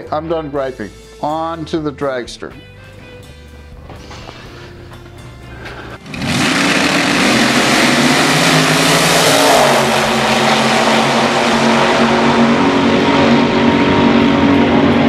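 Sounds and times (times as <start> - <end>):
dragster engines at full throttle: 6.0 - 15.0.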